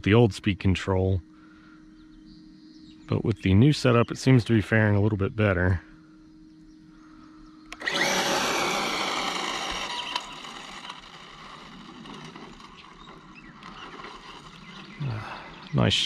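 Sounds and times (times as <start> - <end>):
electric motor high whine: 7.7 - 15.7.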